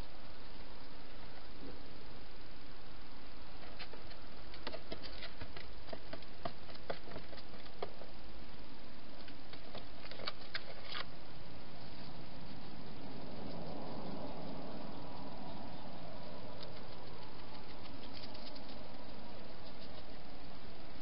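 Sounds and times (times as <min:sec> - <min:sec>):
steady hiss: 0:00.0 - 0:21.0
hedgehog feet scratching on plastic: 0:16.6 - 0:18.9.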